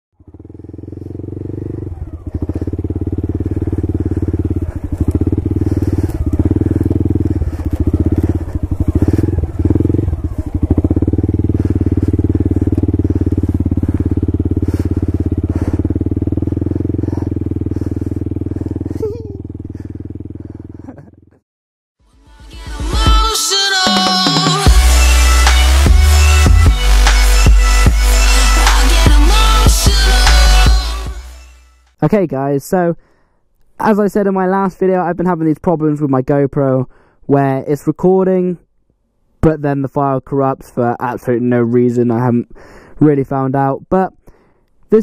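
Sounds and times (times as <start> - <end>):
motorbike engine running: 0.2 - 21.4.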